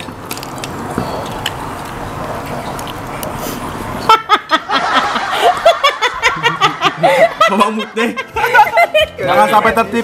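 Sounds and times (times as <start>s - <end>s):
people laughing hard: 4.1s - 9.6s.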